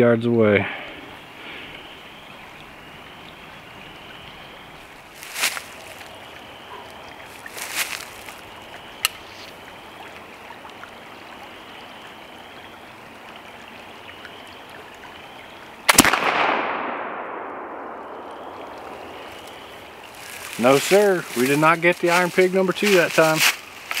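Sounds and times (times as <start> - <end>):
creek running: 0.0 - 16.6, 17.3 - 24.0
rifle shot with echo: 15.9 - 18.1.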